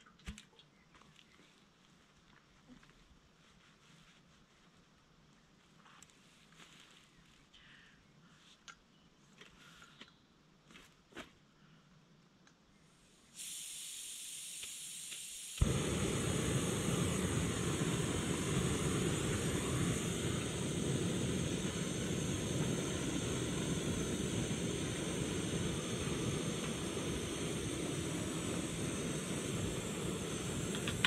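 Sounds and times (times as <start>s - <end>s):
gas hissing: 13.3s - 31.0s
stove burner roaring: 14.2s - 31.0s
burner igniter click: 29.6s - 31.0s.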